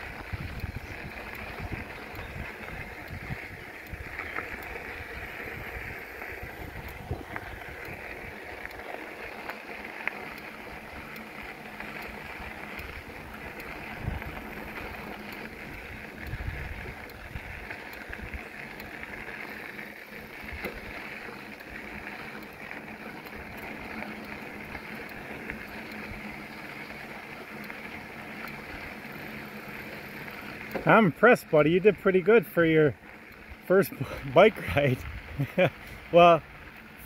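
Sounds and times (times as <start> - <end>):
wind on microphone: 0.0 - 8.1, 13.2 - 14.5, 15.7 - 18.4
bicycles rolling on trail: 0.0 - 37.0
faint clicks: 0.1 - 32.0, 33.0 - 33.9.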